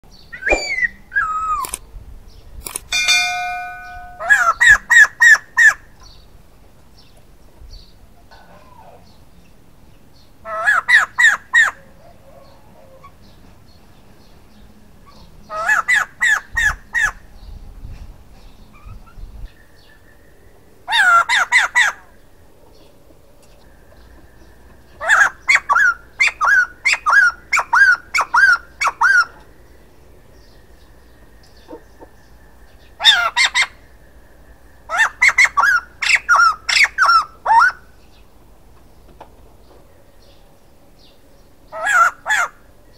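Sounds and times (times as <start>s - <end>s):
bird calling: 0.2s - 1.8s, 2.9s - 6.2s, 23.6s - 29.6s, 31.1s - 34.0s, 34.9s - 38.1s
bird calling in paired notes: 0.3s - 1.8s, 2.9s - 5.8s
ringing bell chime: 2.9s - 4.4s.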